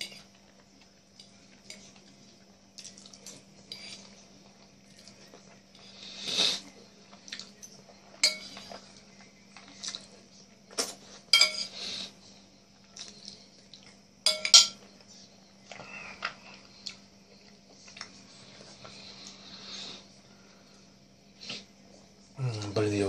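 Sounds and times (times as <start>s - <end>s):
fork clinking on a plate: 7.4s - 8.8s, 10.8s - 11.8s, 14.2s - 14.9s.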